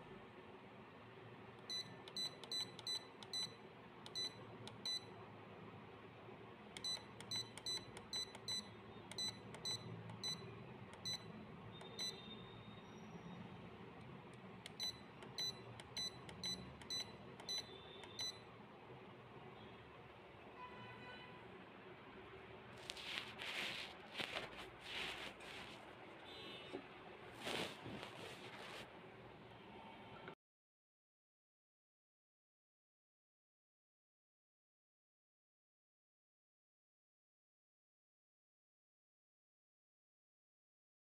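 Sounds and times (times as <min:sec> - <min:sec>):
short high key-press beeps: 0:01.6 - 0:05.1, 0:06.8 - 0:12.4, 0:14.7 - 0:18.4.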